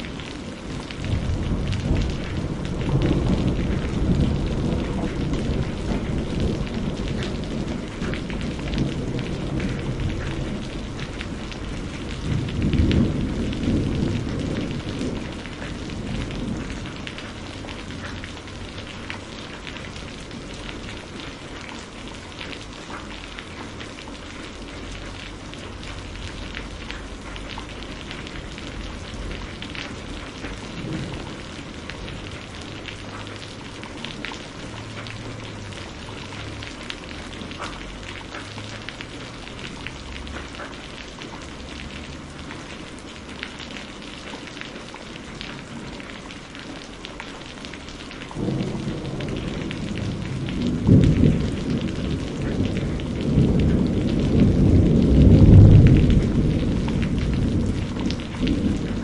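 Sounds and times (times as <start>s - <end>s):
distant thunder rumbling: 0.0s - 22.0s, 24.8s - 38.8s, 48.0s - 59.0s
rain pattering: 0.0s - 59.0s.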